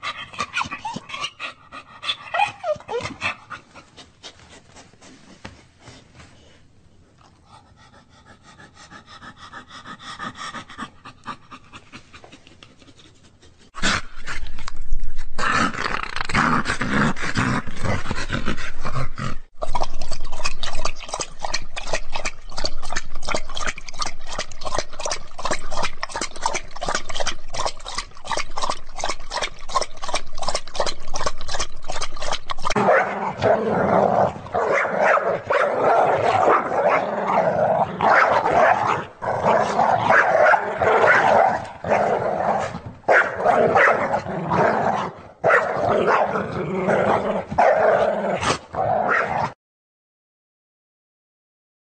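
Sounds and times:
dog making vocal sounds: 0.0 - 5.2.

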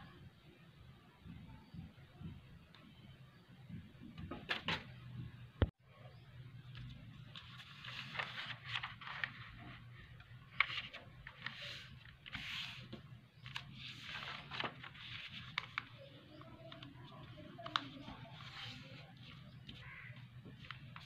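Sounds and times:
paper rustling and folding: 6.8 - 21.0.

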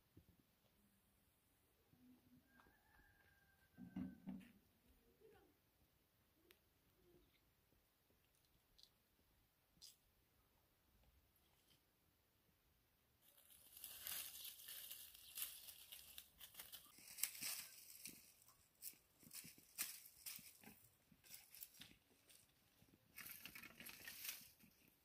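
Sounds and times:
dry brushwood crackling and snapping: 13.2 - 24.9.

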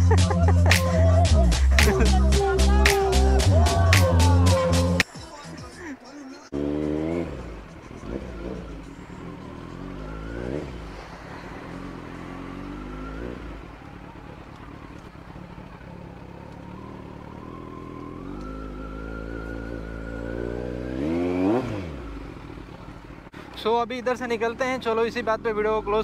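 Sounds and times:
motorcycle engine running: 6.5 - 26.0.

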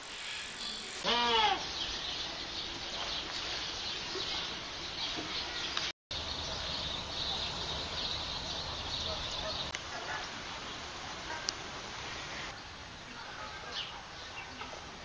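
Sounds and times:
high bird chatter: 1.6 - 10.8.

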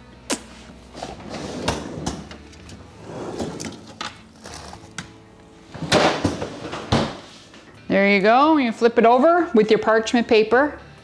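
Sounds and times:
soft background music: 0.0 - 11.0
freezer drawer sliding scrape: 0.8 - 5.0.

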